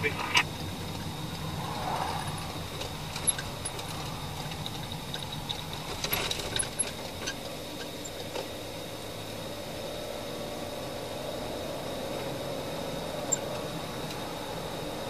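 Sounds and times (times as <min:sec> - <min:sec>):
car engine and road hum: 0:00.0 - 0:15.0
light clicks and rattles: 0:02.8 - 0:08.5.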